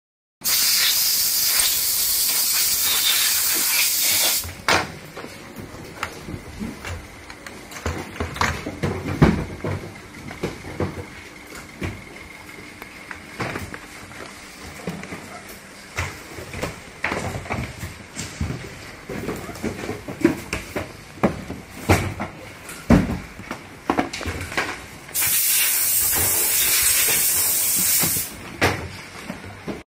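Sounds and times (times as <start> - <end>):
compressed air hissing: 0.4 - 4.4, 25.2 - 28.3
cloth wiping plastic: 0.5 - 4.4.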